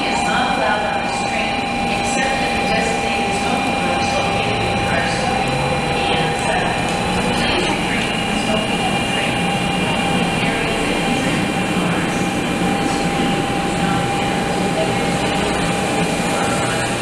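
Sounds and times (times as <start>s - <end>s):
steady whine: 0.0s - 17.0s.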